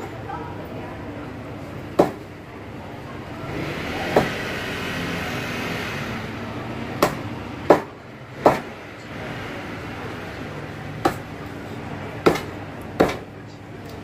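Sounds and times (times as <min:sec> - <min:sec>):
steady background noise: 0:00.0 - 0:14.0
cleaver chopping on cutting board: 0:07.0 - 0:08.7, 0:11.0 - 0:11.3, 0:12.3 - 0:13.2.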